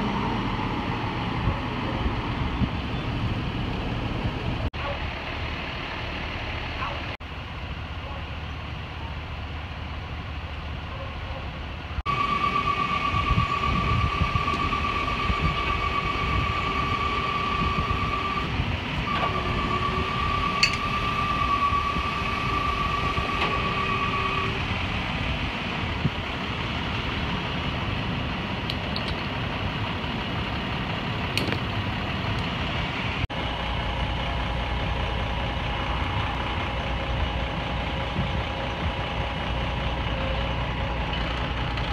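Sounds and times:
diesel engines idling: 0.0 - 41.9
steady high whine: 12.1 - 28.8.

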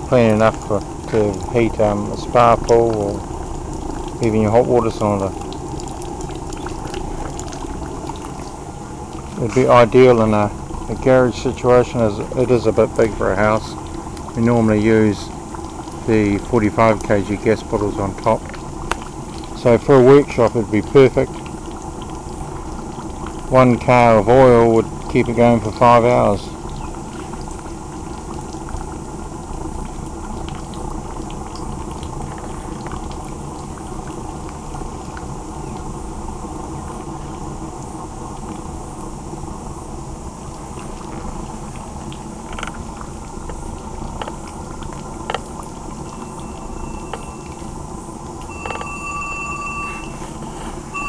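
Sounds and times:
oil burner rumbling: 0.0 - 51.0
short high steady tones: 46.1 - 47.6, 48.4 - 51.0.

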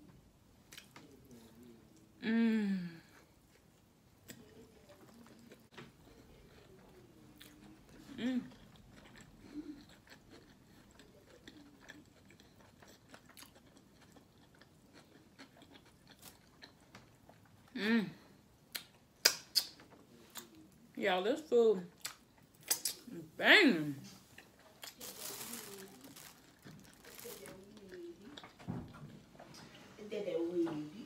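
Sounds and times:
person chewing quietly: 0.6 - 20.9, 21.9 - 30.0
person saying mm: 2.2 - 3.1
wet mouth clicks: 18.7 - 19.8, 22.0 - 23.1.

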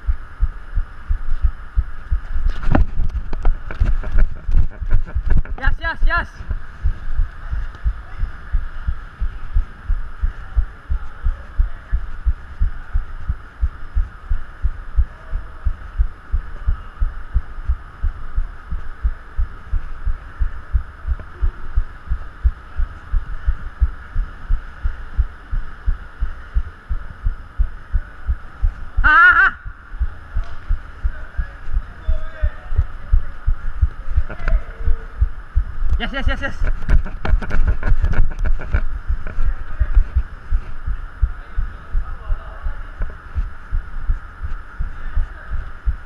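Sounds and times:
faint steady hum: 0.0 - 46.0
person shouting: 29.0 - 29.7.

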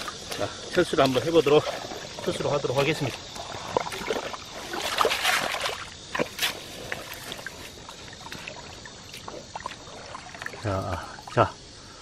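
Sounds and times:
wet mud squelching: 0.0 - 11.4
sharp wet crackles and clicks: 0.0 - 11.5.

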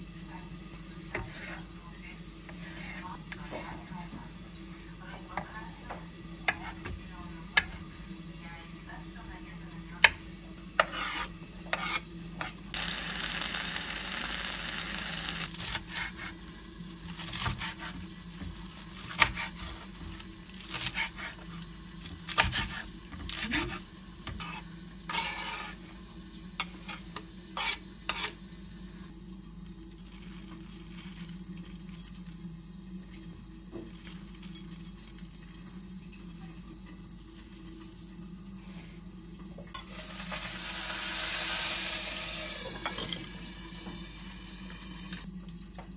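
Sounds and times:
food sizzling in a pan: 0.0 - 39.0, 39.8 - 45.3
utensil scraping a pan: 1.1 - 1.7, 10.8 - 12.6, 22.4 - 25.8, 26.6 - 28.4.

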